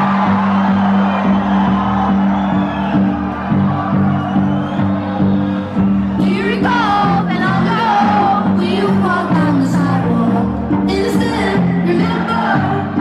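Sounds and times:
sung vocal: 6.2s - 13.0s.

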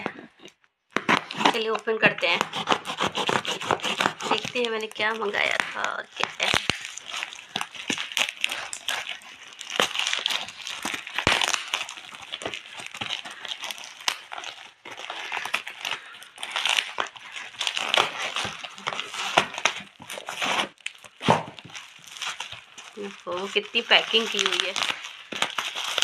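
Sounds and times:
tape and plastic crinkling: 0.0s - 26.0s.

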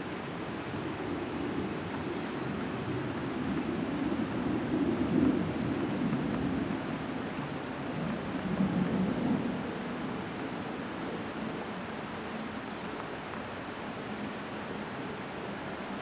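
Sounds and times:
cricket chirping: 0.0s - 16.0s.

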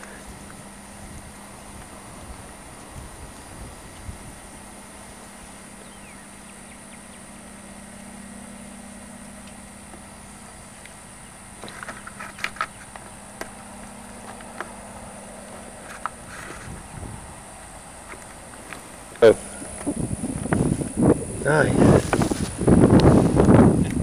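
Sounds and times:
steady low hum: 0.0s - 24.0s
footsteps crunching through dry grass: 11.8s - 23.8s.

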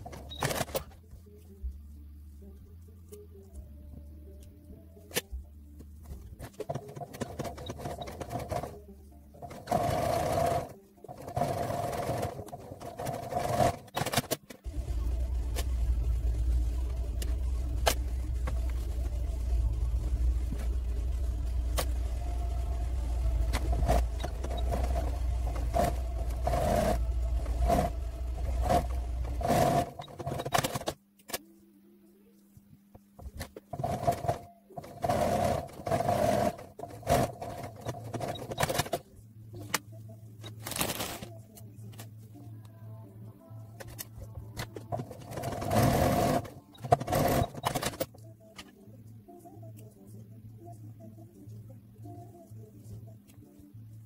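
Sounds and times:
sewing machine stitching: 6.4s - 8.8s, 9.4s - 15.9s, 16.7s - 31.0s, 33.4s - 39.0s, 44.9s - 48.1s.

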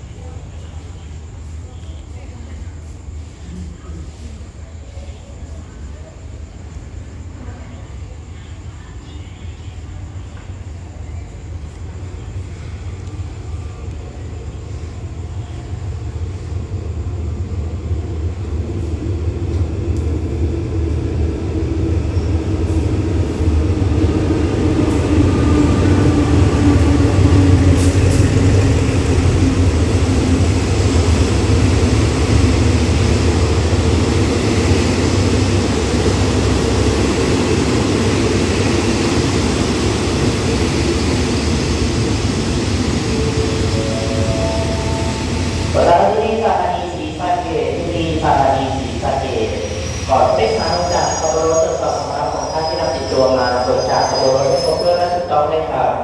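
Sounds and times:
carriages rumbling on rails: 0.0s - 56.0s
locomotive engine droning: 24.2s - 50.3s.

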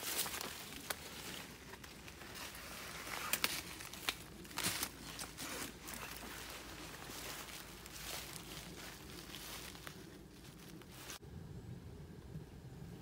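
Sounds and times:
footsteps in dry leaves: 0.0s - 11.2s
sharp crackles: 0.0s - 11.2s.

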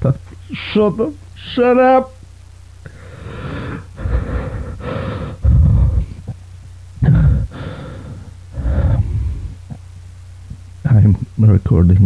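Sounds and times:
distorted garbled voice-like noise: 0.0s - 2.2s, 7.0s - 9.9s, 10.5s - 12.0s
steady low hum: 0.0s - 12.0s.

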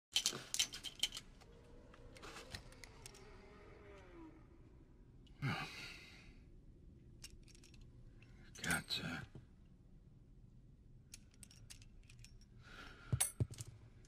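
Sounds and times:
person sighing: 5.4s - 6.3s
metal cartridges clicking: 7.2s - 8.4s, 11.1s - 12.5s.

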